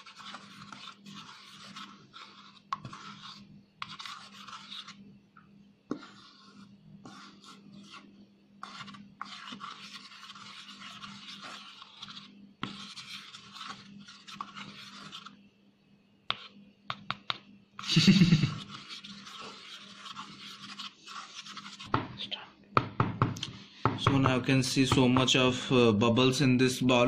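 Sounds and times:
spatula scraping a rubber bowl: 0.0 - 5.1, 5.9 - 15.5, 17.8 - 22.0.

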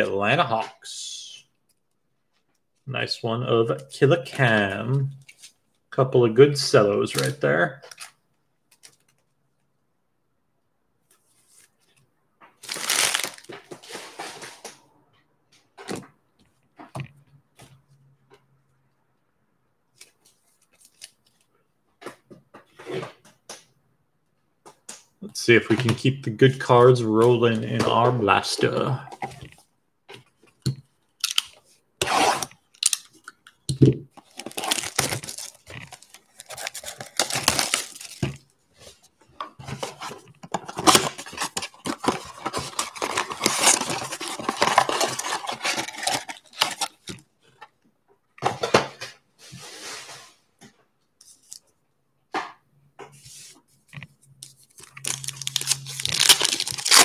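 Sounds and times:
card pack tearing: 12.6 - 13.6, 34.2 - 38.4, 39.8 - 47.1, 54.7 - 57.0
plastic wrap crinkling and tearing: 12.6 - 13.6, 34.2 - 38.5, 40.6 - 47.1, 54.5 - 57.0.

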